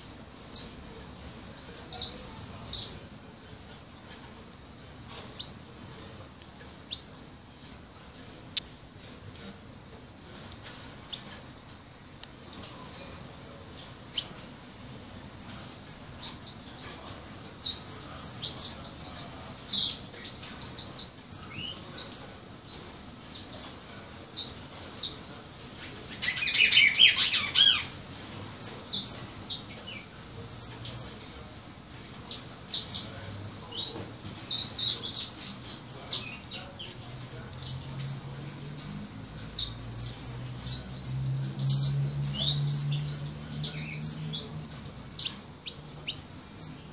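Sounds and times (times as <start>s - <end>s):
songbird chirps and twitters: 0.0s - 3.2s, 6.8s - 7.1s, 14.0s - 46.9s.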